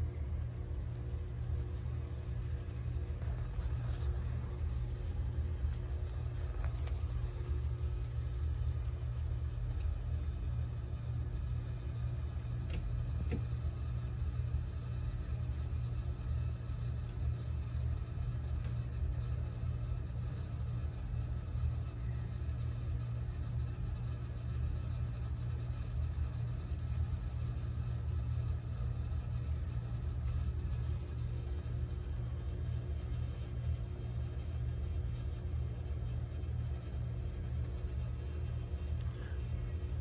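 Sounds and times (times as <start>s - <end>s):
cricket chirping: 0.0s - 15.8s, 23.9s - 33.5s
steady low hum: 0.0s - 40.0s.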